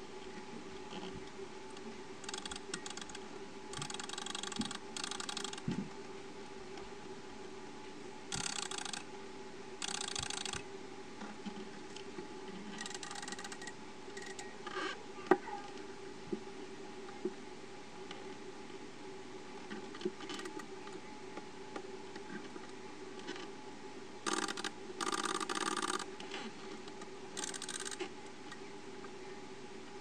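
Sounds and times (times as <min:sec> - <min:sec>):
alarm clock winding ratchet clicks: 0:02.2 - 0:03.2, 0:03.8 - 0:05.6, 0:08.3 - 0:09.0, 0:09.8 - 0:10.6, 0:12.8 - 0:14.4, 0:24.3 - 0:26.1, 0:27.4 - 0:28.0.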